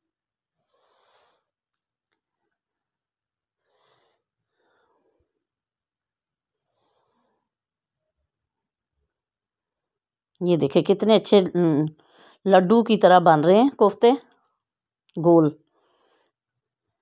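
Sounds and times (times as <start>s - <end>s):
faint breaths: 0.6s - 1.6s, 3.6s - 5.6s, 6.5s - 7.6s, 12.0s - 12.5s, 15.6s - 16.5s.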